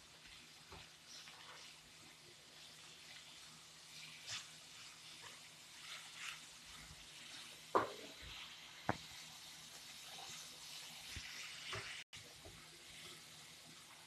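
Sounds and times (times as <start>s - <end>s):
food sizzling in a pan: 0.0s - 14.0s.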